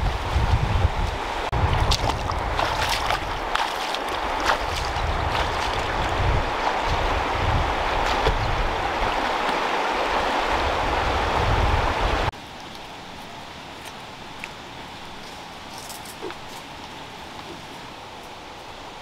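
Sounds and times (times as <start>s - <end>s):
wind buffeting microphone: 0.0s - 12.3s
river water rushing over stones: 1.1s - 19.0s
person wading through water: 1.6s - 10.6s.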